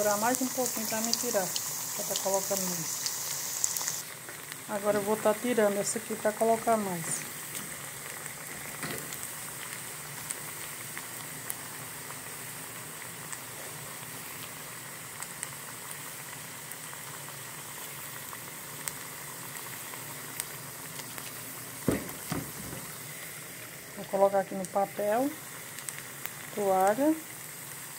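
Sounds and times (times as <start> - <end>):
oil bubbling and sizzling: 0.0 - 27.9
sharp knock: 21.9 - 22.8.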